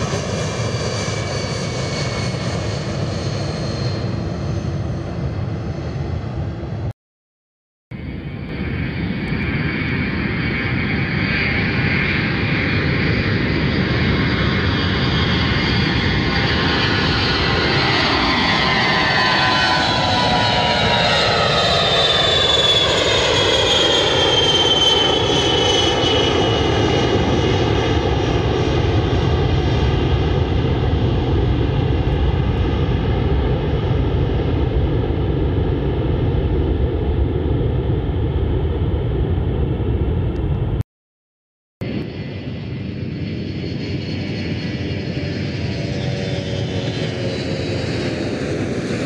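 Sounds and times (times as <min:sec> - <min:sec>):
jet roar with whining tones: 0:00.0 - 0:06.9, 0:08.0 - 0:40.8, 0:41.8 - 0:49.0.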